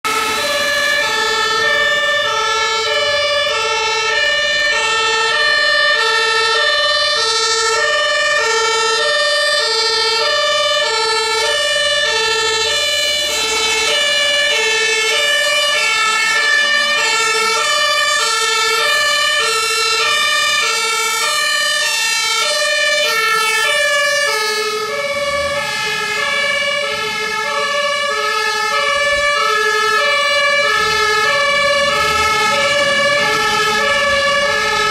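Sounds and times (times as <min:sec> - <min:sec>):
two-tone fire engine siren: 0:00.0 - 0:34.9.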